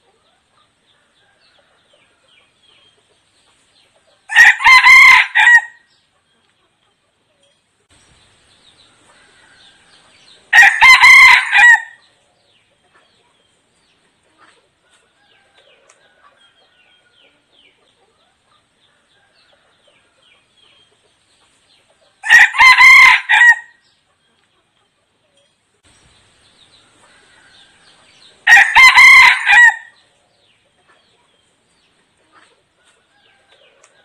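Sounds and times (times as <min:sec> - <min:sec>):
rooster crowing: 0:04.3 - 0:05.8, 0:09.1 - 0:12.0, 0:22.2 - 0:23.8, 0:27.1 - 0:30.0.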